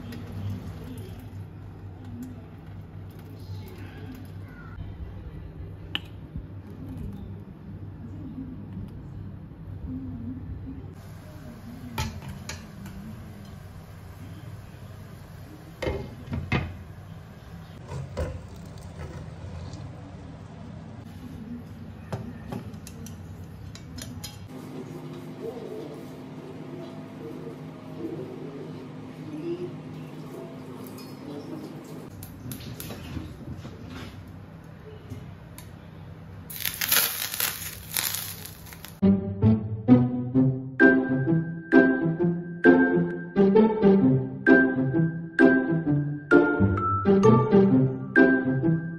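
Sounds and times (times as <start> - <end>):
hot oil sizzling and crackling: 36.5 - 39.0.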